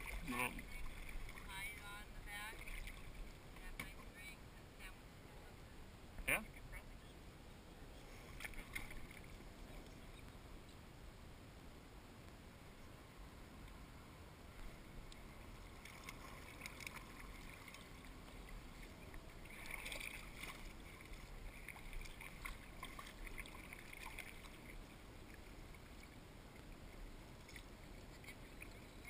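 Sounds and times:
paddle splashing water: 0:00.0 - 0:04.2, 0:08.0 - 0:10.2, 0:15.2 - 0:29.0.

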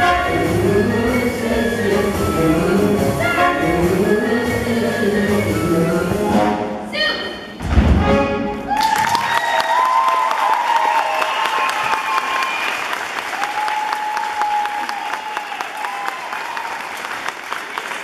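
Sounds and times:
people cheering: 0:08.6 - 0:18.0
audience clapping: 0:08.7 - 0:18.0.

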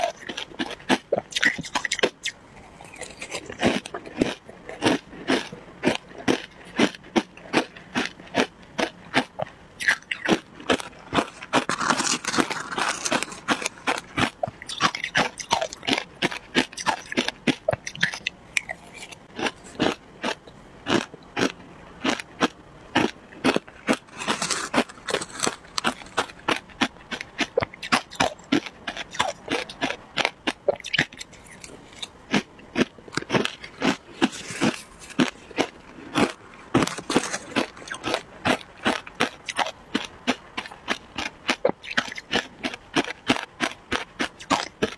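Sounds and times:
ice being chewed: 0:00.0 - 0:44.9.

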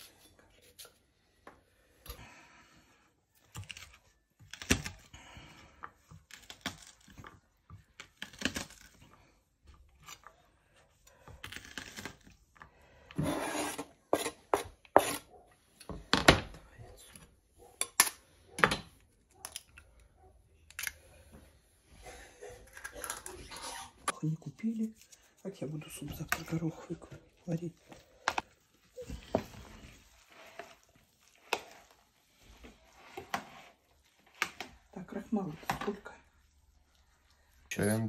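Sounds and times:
knife scraping across board: 0:13.2 - 0:15.3.

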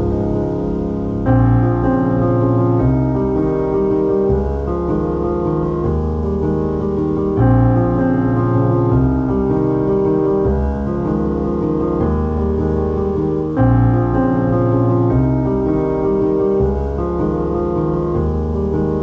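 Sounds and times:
gentle piano music: 0:00.0 - 0:19.0.

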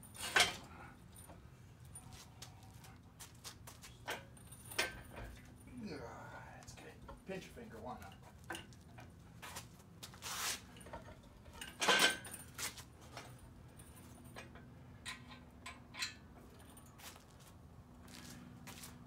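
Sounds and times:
metal clinks and rattles: 0:00.0 - 0:02.7, 0:04.0 - 0:05.8, 0:10.6 - 0:17.4.

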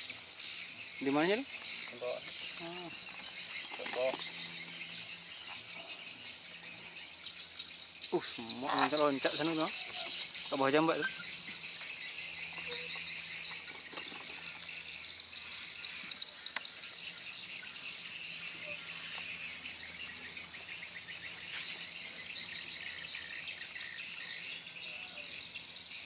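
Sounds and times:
insects trilling: 0:00.0 - 0:26.0.

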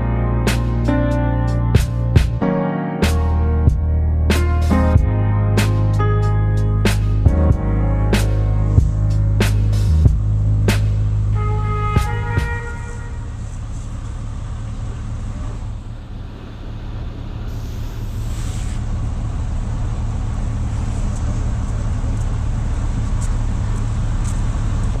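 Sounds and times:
engine hum: 0:00.0 - 0:25.0
road traffic rumble: 0:00.0 - 0:25.0
brief hiss: 0:17.5 - 0:18.9.

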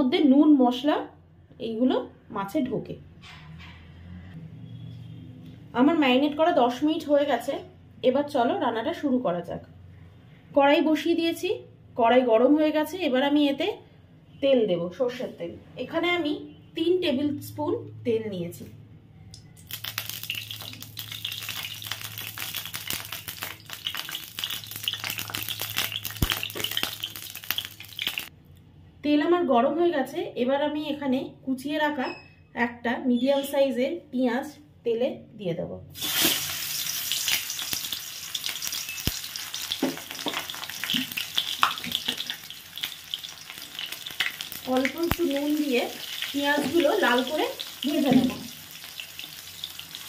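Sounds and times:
induction cooktop hum: 0:19.2 - 0:29.2, 0:35.9 - 0:50.0
oil crackling and popping: 0:19.6 - 0:28.3, 0:36.0 - 0:50.0.

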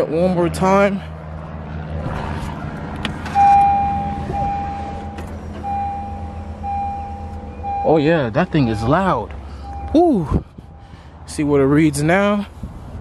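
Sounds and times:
fuel pump whine: 0:03.0 - 0:11.3.

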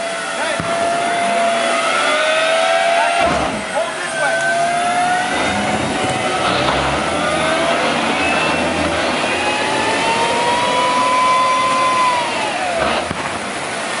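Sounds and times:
tank turbine engine whining: 0:00.0 - 0:14.0.

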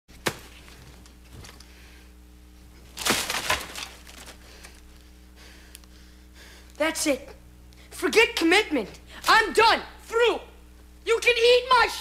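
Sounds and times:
faint steady hum: 0:00.1 - 0:12.0
rustling of bedding and plastic wrappers: 0:02.9 - 0:05.0.

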